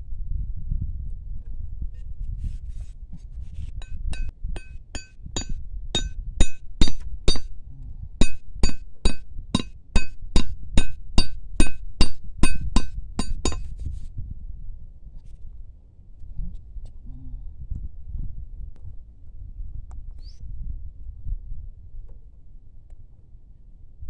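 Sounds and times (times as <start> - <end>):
machete striking wooden stake: 3.8 - 7.5, 8.2 - 13.7.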